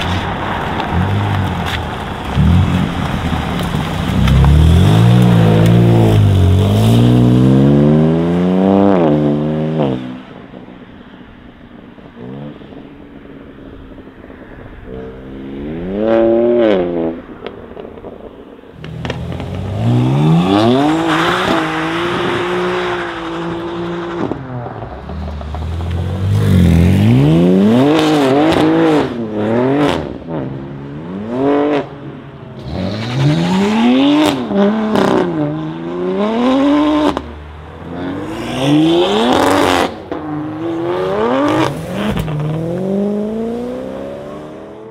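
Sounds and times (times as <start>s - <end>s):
car engine revving: 0.0s - 10.1s, 18.8s - 31.9s, 32.6s - 44.9s.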